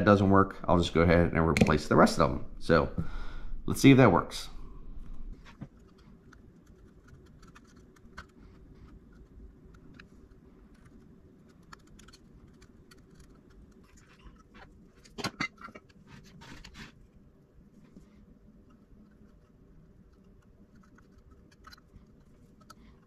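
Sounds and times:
desoldering clicks and scratches: 0:05.4 - 0:17.1, 0:18.6 - 0:23.0.

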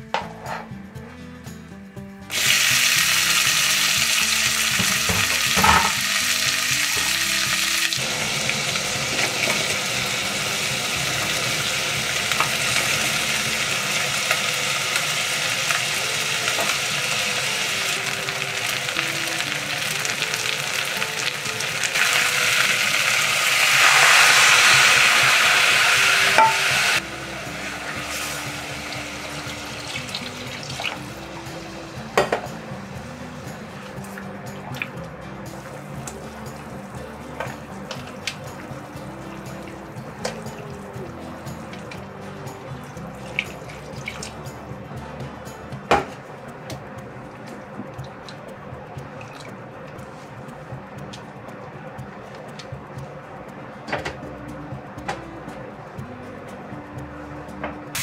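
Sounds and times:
food sizzling in a saucepan: 0:02.3 - 0:44.6.

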